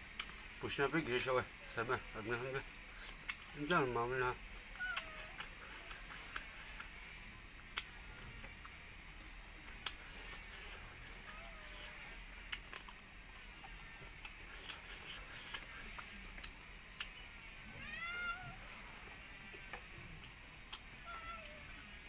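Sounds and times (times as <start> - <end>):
chewing and lip smacks: 0.1 - 0.5, 2.7 - 3.6, 4.9 - 7.0, 7.7 - 17.2, 20.1 - 20.9
cat meowing: 17.7 - 18.7, 21.0 - 21.9.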